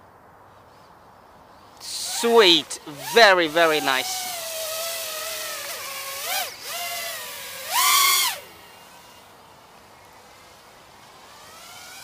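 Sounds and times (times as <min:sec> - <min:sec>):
quadcopter motors whining: 0:01.8 - 0:12.0.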